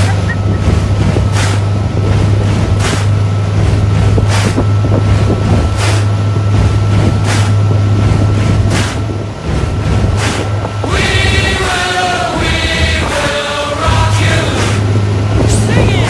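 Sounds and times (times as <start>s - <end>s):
motorboat engine drone: 0.0s - 16.0s
wind on microphone: 0.0s - 16.0s.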